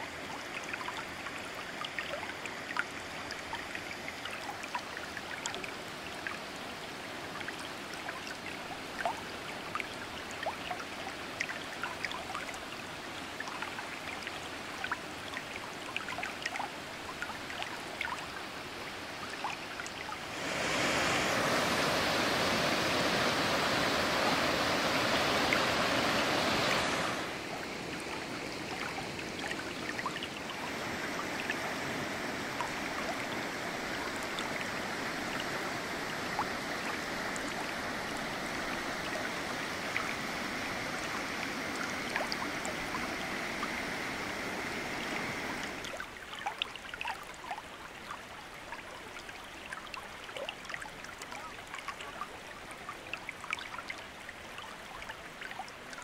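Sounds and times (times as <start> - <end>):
waterfall rushing: 20.2 - 45.9.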